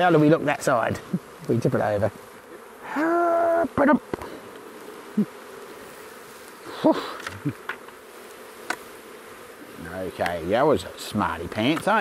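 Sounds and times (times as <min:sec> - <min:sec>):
honey bees buzzing: 0:00.0 - 0:12.0.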